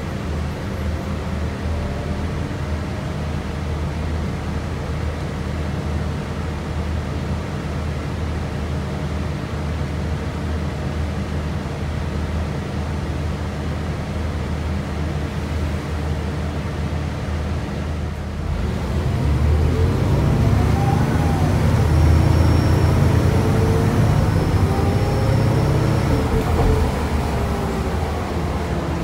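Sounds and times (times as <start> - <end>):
bus engine while driving: 0.0 - 29.0
transmission whine: 18.6 - 29.0.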